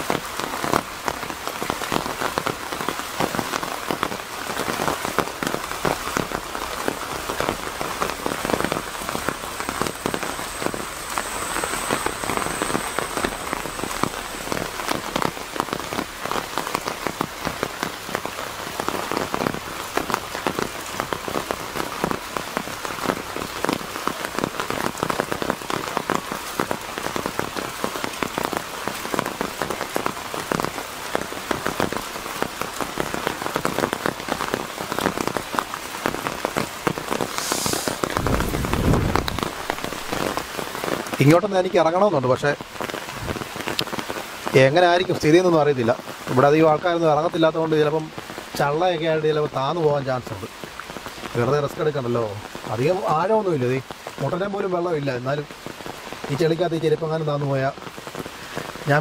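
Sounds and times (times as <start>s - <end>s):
heavy rain: 0.0s - 59.0s
raindrops pattering nearby: 0.0s - 59.0s.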